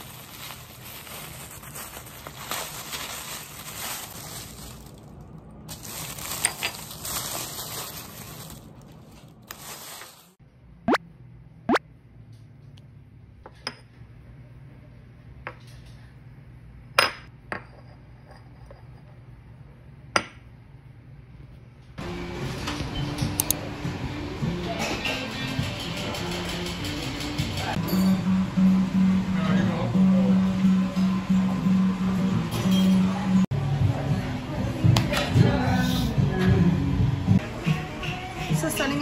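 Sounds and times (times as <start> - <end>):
packing paper crinkling: 0.0 - 10.4.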